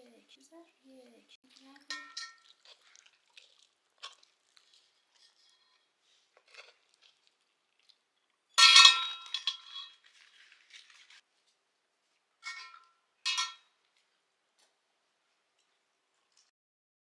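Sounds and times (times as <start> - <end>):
metal spoons clinking on bowl: 1.8 - 2.6, 8.6 - 10.0, 12.4 - 13.7.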